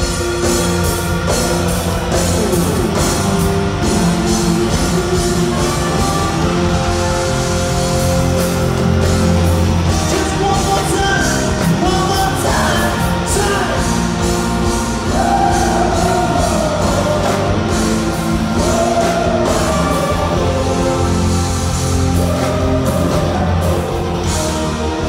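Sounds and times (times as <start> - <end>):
drums: 0.0 - 25.0
electric guitar: 0.0 - 25.0
keyboards: 0.0 - 25.0
person singing: 10.1 - 14.1.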